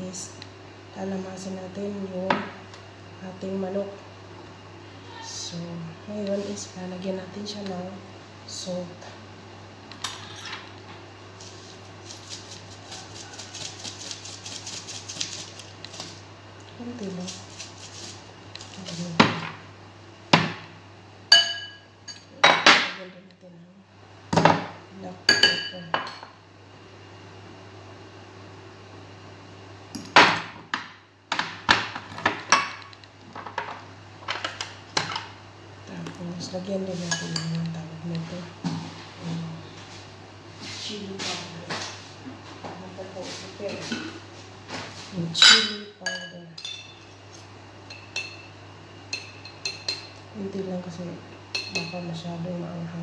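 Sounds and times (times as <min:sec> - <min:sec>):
low steady hum: 0:00.0 - 0:53.0
metal spoon clinking on glass: 0:21.3 - 0:22.3, 0:45.4 - 0:47.1, 0:49.1 - 0:50.1, 0:51.6 - 0:52.0.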